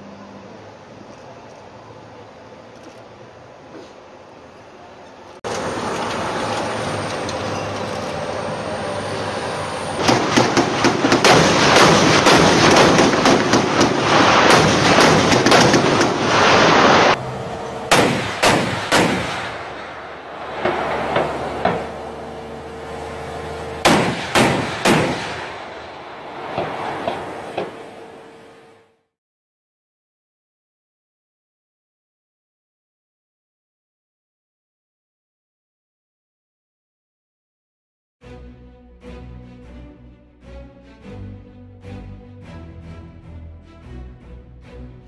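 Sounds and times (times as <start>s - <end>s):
rapid gunfire: 10.0s - 17.2s, 17.9s - 19.6s, 23.8s - 25.4s
single gunshots: 10.0s - 17.2s, 17.9s - 19.8s, 23.8s - 25.8s.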